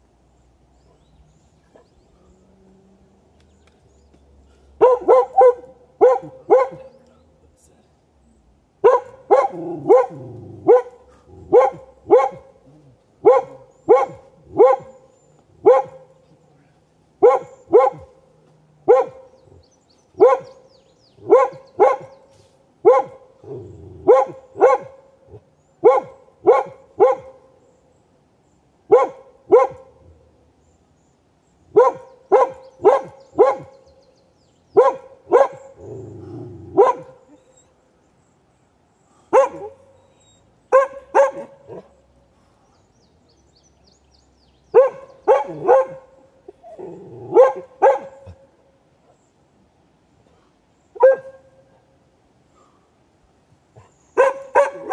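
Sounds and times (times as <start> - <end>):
dog barking: 4.8 - 7.0, 8.8 - 12.6, 13.2 - 16.1, 17.2 - 18.2, 18.8 - 19.4, 20.2 - 22.2, 22.8 - 27.5, 28.9 - 30.0, 31.7 - 33.8, 34.8 - 35.9, 36.7 - 37.4, 39.3 - 40.0, 40.7 - 42.0, 44.7 - 46.6, 47.3 - 48.5, 51.0 - 51.6, 53.8 - 54.9.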